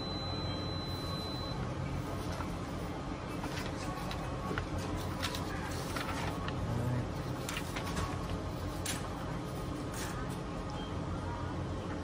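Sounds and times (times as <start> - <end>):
low room hum: 0.0 - 12.0
paper being shuffled: 3.3 - 6.6, 7.2 - 10.4
paper crackles: 3.3 - 10.4.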